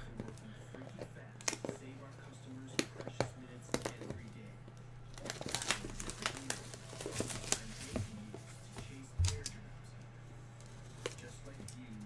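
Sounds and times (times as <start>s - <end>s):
plastic shrink-wrap crinkling: 5.1s - 8.1s.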